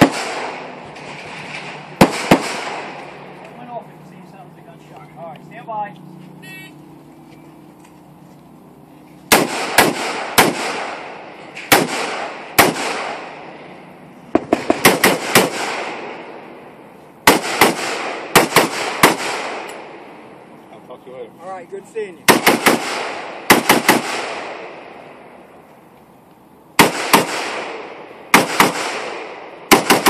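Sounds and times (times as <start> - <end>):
rifle shots with echo: 0.0 - 0.8, 1.5 - 3.4, 9.3 - 13.6, 14.3 - 16.6, 17.2 - 20.2, 22.2 - 25.2, 26.8 - 30.0.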